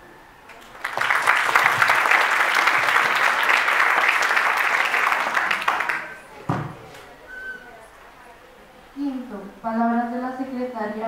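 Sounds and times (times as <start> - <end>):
audience applauding: 0.5 - 7.1.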